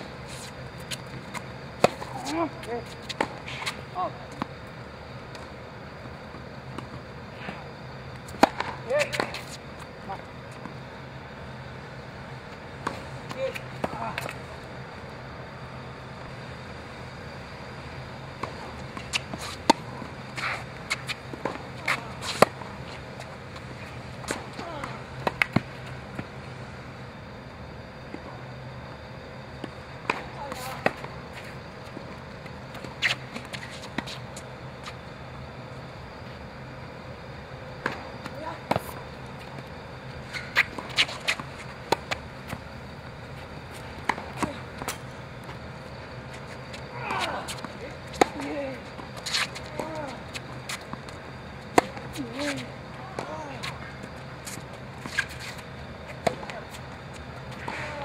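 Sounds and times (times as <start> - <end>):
low steady hum: 0.0 - 58.0
tennis ball bouncing: 8.3 - 9.6, 39.9 - 52.6
shoe scuffs on court: 19.0 - 23.0, 32.8 - 35.0, 40.2 - 42.6, 46.2 - 58.0.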